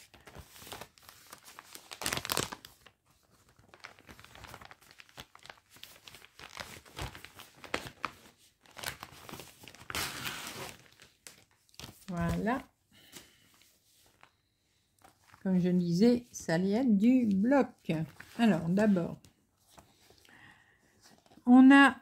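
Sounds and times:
plastic packaging crinkling: 0.0 - 12.6.

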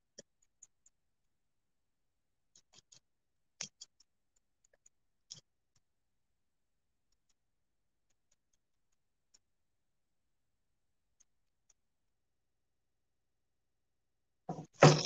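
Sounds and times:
faint clicks and scratches of tape: 0.0 - 1.4, 2.5 - 6.2, 6.9 - 12.2.

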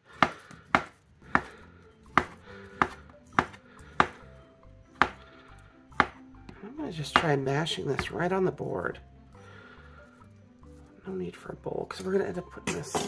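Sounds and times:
knife chopping on cutting board: 0.1 - 4.2, 5.0 - 5.2, 5.9 - 6.2, 7.1 - 8.2.

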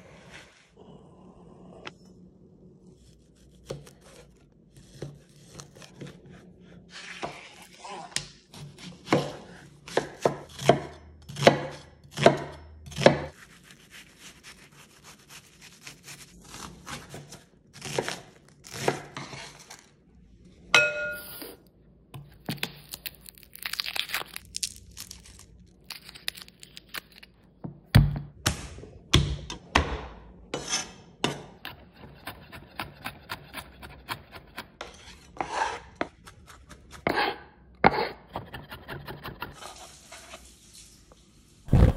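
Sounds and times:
knife chopping on wooden board: 8.5 - 13.3.

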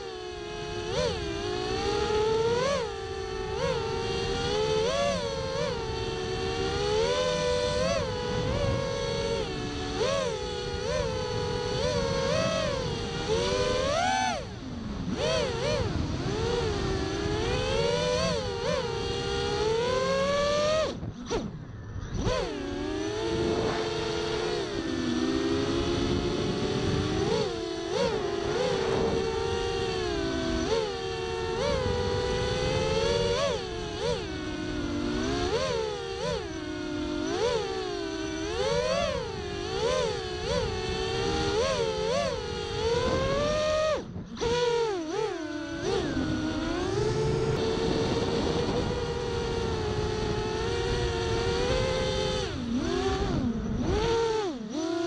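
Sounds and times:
drone motors whining: 0.0 - 55.0
wind noise: 0.2 - 55.0.

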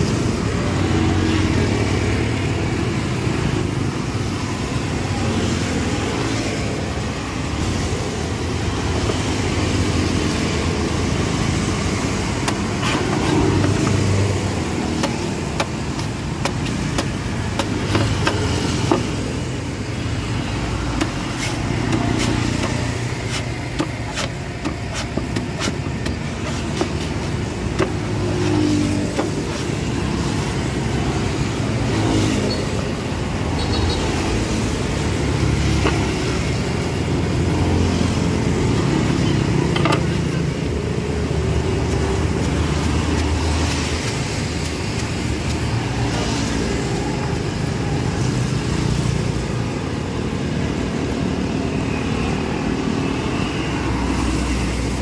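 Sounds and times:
street traffic: 0.0 - 55.0
cleaver chopping coconut husk: 12.3 - 19.3, 20.9 - 30.0.

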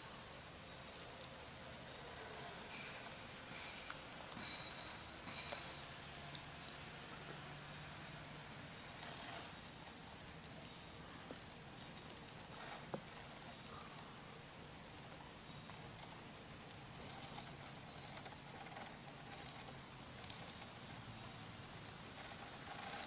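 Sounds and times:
faint outdoor hiss: 0.0 - 23.0.

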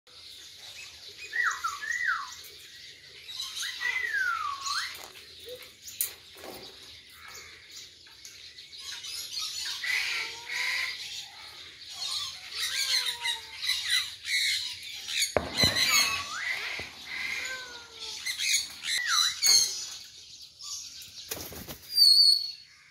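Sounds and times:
sharp knock: 15.4 - 17.3.

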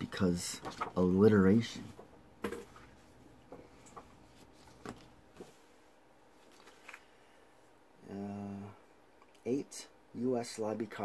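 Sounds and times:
paper and packaging rustling: 0.1 - 3.1, 6.4 - 7.1.

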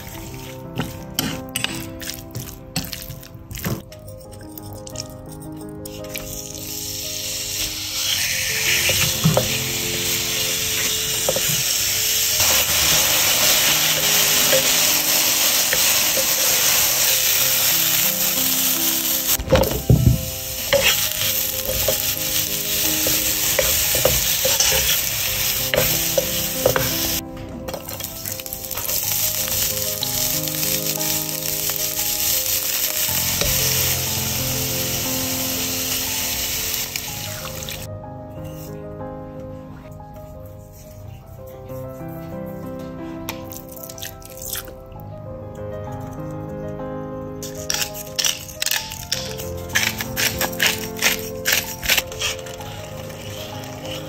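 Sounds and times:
oil sizzling in frying pan: 6.2 - 27.2, 27.8 - 37.9, 49.8 - 54.0.

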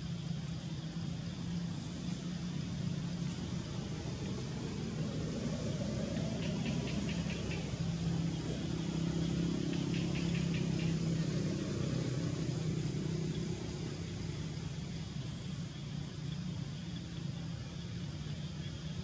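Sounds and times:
engine hum: 0.0 - 19.0.

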